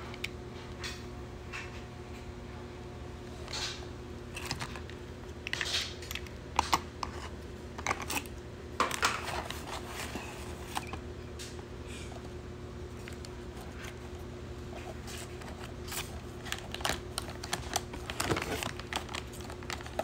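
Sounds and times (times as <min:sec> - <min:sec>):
steady low hum: 0:00.0 - 0:20.0
plastic and paper rustling: 0:08.8 - 0:11.0, 0:12.9 - 0:20.0.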